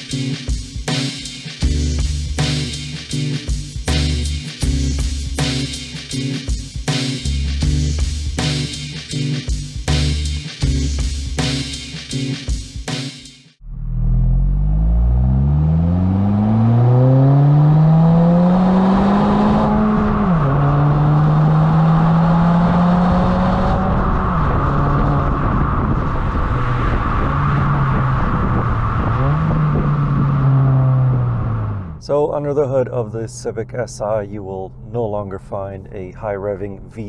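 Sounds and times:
car engine accelerating: 0:13.6 - 0:37.0.

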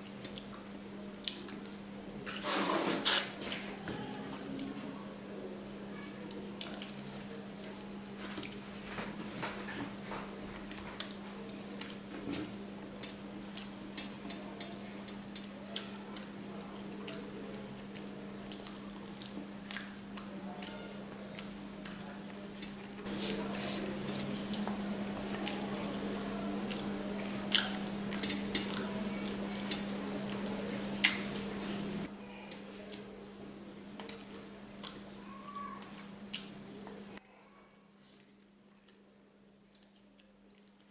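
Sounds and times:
steady low hum: 0:00.0 - 0:37.2
wet chewing and lip-smacking: 0:00.2 - 0:01.8, 0:10.6 - 0:16.4, 0:17.0 - 0:31.5, 0:34.0 - 0:35.1, 0:35.8 - 0:37.0, 0:38.0 - 0:40.9.

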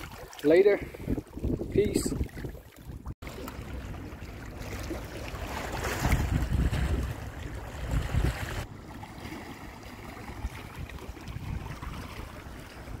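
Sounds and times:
waves lapping against rocks: 0:00.0 - 0:13.0
wind buffeting microphone: 0:00.8 - 0:03.2, 0:05.8 - 0:08.7, 0:10.3 - 0:13.0.

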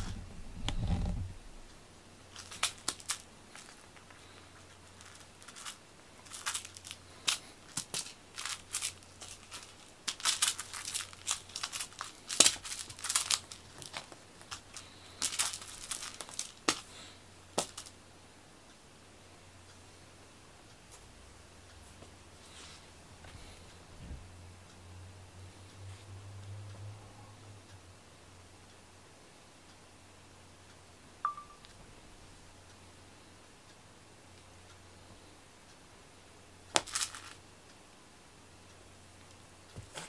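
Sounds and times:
toy dragged across foam mats: 0:00.0 - 0:01.4.

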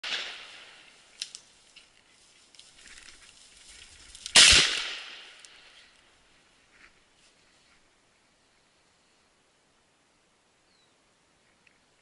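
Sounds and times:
shotgun blast: 0:04.3 - 0:05.4.

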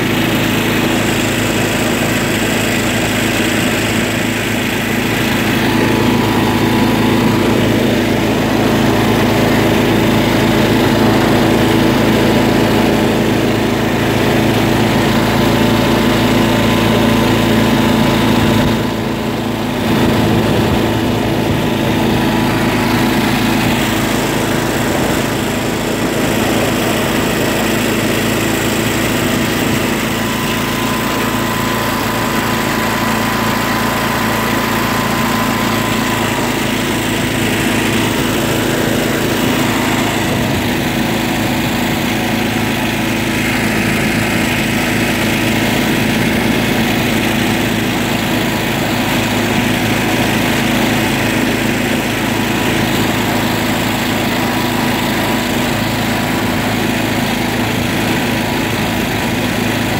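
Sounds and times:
lawn tractor engine running: 0:00.0 - 0:59.9.

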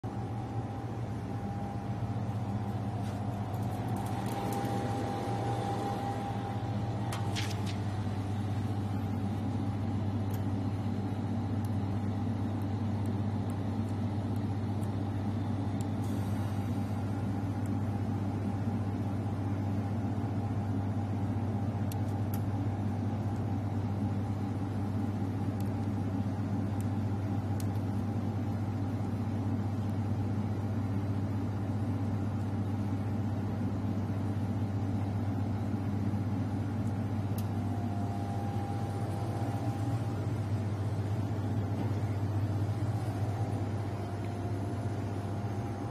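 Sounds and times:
high machine whine: 0:00.0 - 0:18.2, 0:35.6 - 0:45.9
laser machine drone: 0:03.4 - 0:07.2.

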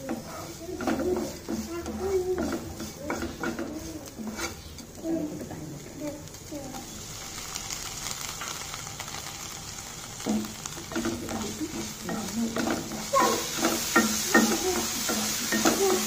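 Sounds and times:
spatula scraping pan: 0:00.0 - 0:06.3, 0:10.2 - 0:16.0
oil sizzling: 0:00.0 - 0:16.0.

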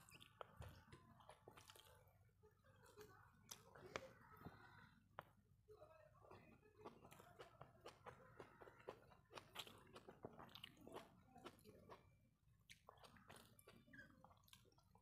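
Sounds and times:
person chewing food: 0:00.0 - 0:05.6, 0:06.2 - 0:15.0
fingers mixing rice on plate: 0:05.2 - 0:15.0.

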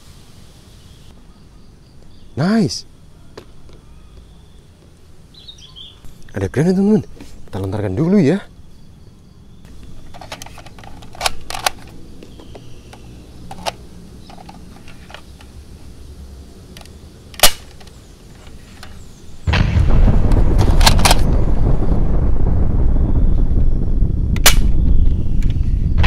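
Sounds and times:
loud rumbling explosion: 0:19.5 - 0:26.0.

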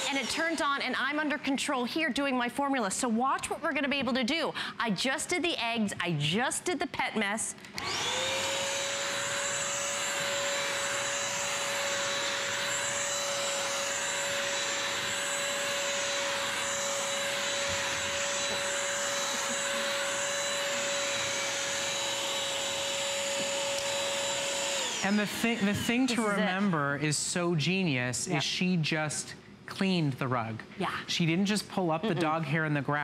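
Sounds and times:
vacuum mop motor whine: 0:00.0 - 0:00.8, 0:07.8 - 0:26.6
suction and brush roll noise: 0:09.0 - 0:26.0.

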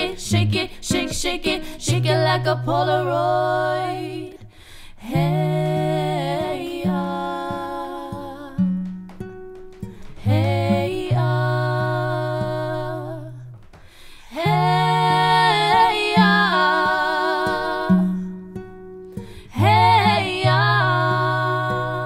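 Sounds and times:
women singing in harmony: 0:00.0 - 0:08.9, 0:09.8 - 0:18.4, 0:19.2 - 0:22.0.

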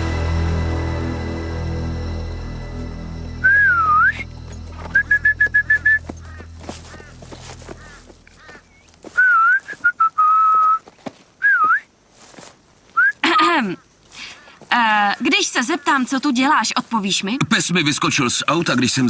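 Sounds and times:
person whistling: 0:03.4 - 0:06.1, 0:09.2 - 0:10.8, 0:11.4 - 0:11.9, 0:13.0 - 0:13.2.

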